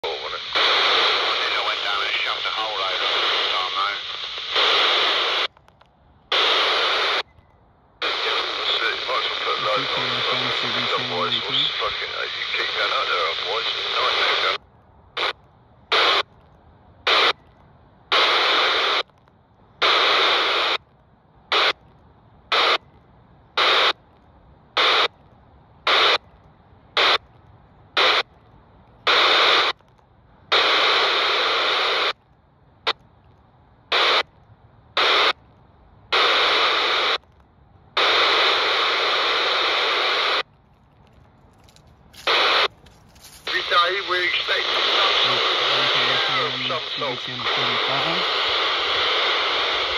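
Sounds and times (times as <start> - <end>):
radio static bursts: 0.0 - 5.5, 6.3 - 7.3, 8.0 - 14.6, 15.2 - 16.2, 17.1 - 17.4, 18.1 - 19.1, 19.8 - 20.8, 21.5 - 21.8, 22.5 - 22.8, 23.6 - 24.0, 24.8 - 25.1, 25.9 - 26.2, 27.0 - 27.2, 28.0 - 28.2, 29.0 - 29.8, 30.5 - 32.1, 33.9 - 34.2, 35.0 - 35.4, 36.1 - 37.2, 38.0 - 40.4, 42.2 - 42.7, 43.4 - 49.9.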